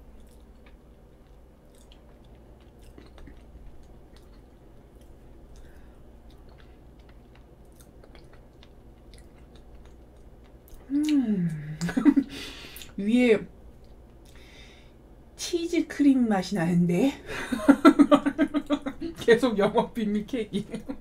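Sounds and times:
chewing soft cake: 0.0 - 12.0, 13.7 - 14.5
steady low hum: 0.0 - 21.0.

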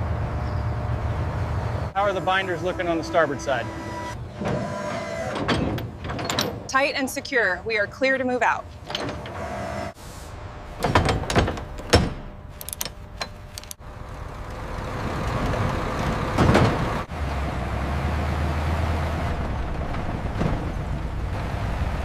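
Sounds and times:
truck engine droning: 0.0 - 22.0
chain and binder clanking: 5.3 - 6.8.

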